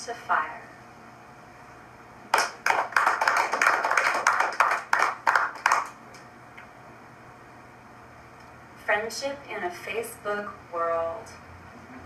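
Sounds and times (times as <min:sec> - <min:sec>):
audience applauding: 0:02.3 - 0:06.0.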